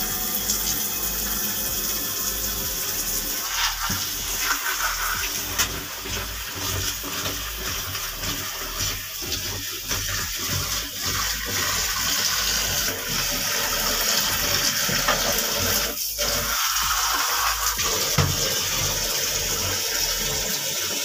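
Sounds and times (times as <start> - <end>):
tap water splashing into bowl: 17.8 - 19.0.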